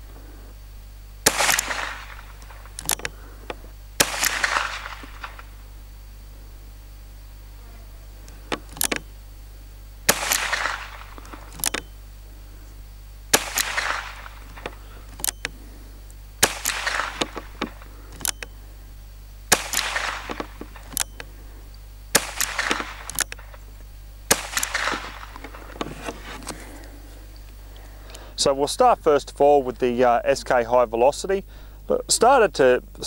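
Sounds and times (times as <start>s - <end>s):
rifle shots with echo: 1.2s - 3.4s, 4.0s - 5.8s, 10.0s - 11.9s, 13.3s - 15.0s, 16.4s - 18.1s, 19.5s - 21.1s, 22.1s - 23.7s, 24.3s - 27.0s
small clicks: 1.4s - 5.6s, 8.2s - 9.1s, 10.3s - 12.0s, 13.4s - 18.6s, 19.6s - 23.9s.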